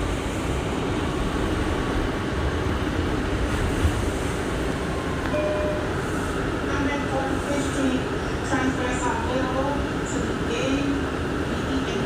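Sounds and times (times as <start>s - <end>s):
subway car rumbling: 0.0s - 12.0s
short steady tone: 5.3s - 6.0s.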